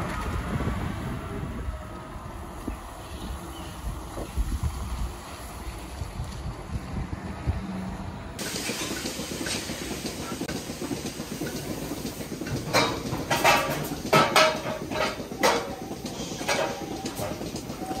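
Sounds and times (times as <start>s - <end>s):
milking machinery hissing: 8.4s - 14.1s, 14.8s - 18.0s
sharp metallic clanks: 11.0s - 18.0s.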